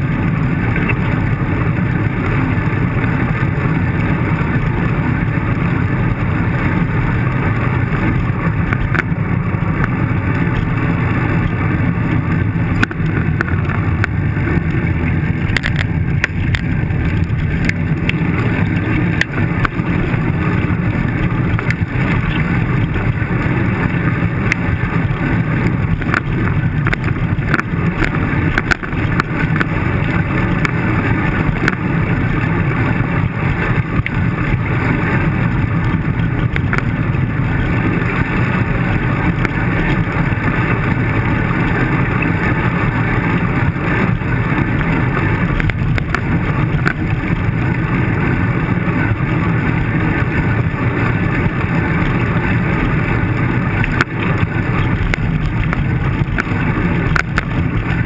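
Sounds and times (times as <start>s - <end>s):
road rumble: 0.0s - 58.0s
wind rush on microphone: 0.0s - 58.0s
bicycle clicks and rattles: 8.0s - 48.3s.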